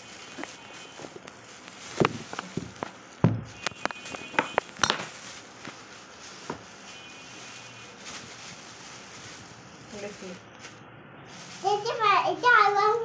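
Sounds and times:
plastic bag crinkling: 0.0s - 13.0s
heavy thump: 2.0s - 3.6s.

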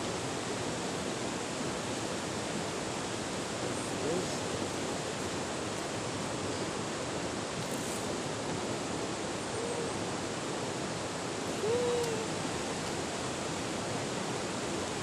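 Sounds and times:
flowing water rushing: 0.0s - 15.0s.

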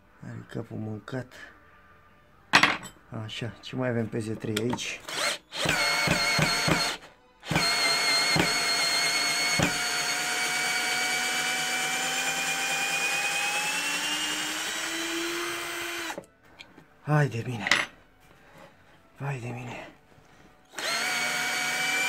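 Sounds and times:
cordless drill whining: 5.0s - 16.2s, 20.7s - 22.0s.

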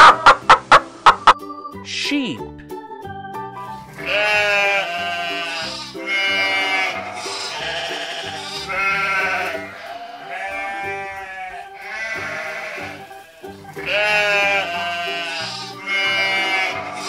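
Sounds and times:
light background music: 0.0s - 17.0s
sheep bleating: 4.0s - 17.0s.

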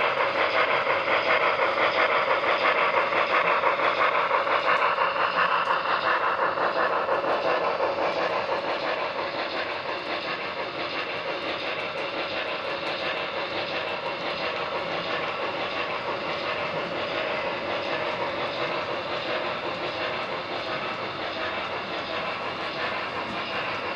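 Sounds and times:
model freight cars rolling: 0.0s - 23.9s
wheels ticking on rail joints: 0.0s - 23.9s.

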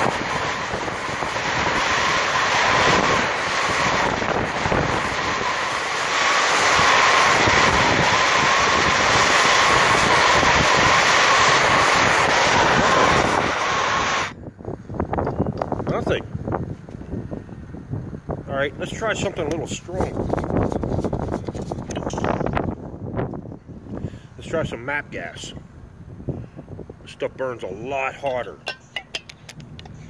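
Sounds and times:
torch flame hissing: 0.0s - 14.3s
wind on microphone: 0.0s - 30.0s.

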